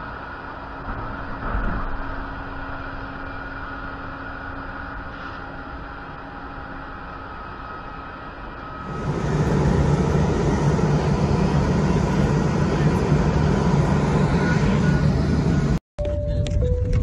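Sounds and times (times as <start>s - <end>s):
faint steady drone: 2.0s - 15.8s
low rumble: 8.7s - 17.0s
airport apron hum: 8.8s - 15.8s.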